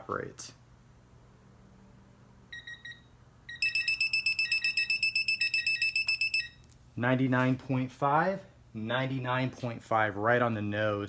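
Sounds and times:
torque wrench beeping: 0:02.6 - 0:06.6.

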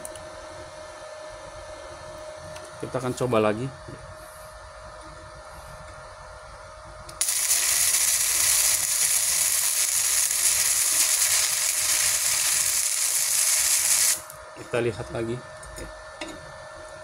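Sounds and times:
welding arc crackling with spatter: 0:07.2 - 0:14.4.

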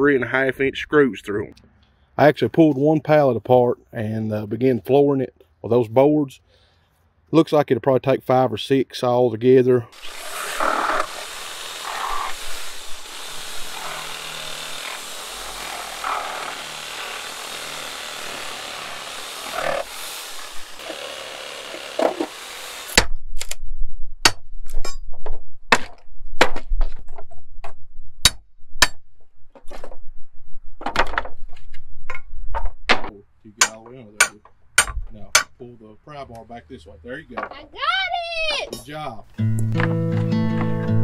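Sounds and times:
saw cutting wood: 0:09.9 - 0:23.1.

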